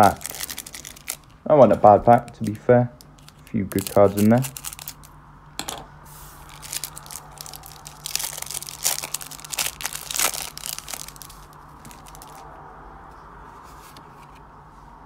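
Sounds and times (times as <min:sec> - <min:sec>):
foil wrapper crinkling: 0:00.0 - 0:05.1, 0:06.4 - 0:12.5.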